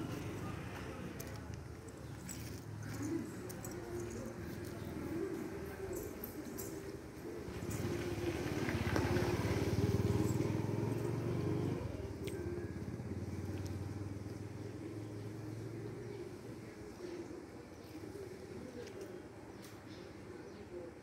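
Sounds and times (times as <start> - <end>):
vehicle engine running: 7.5 - 16.1.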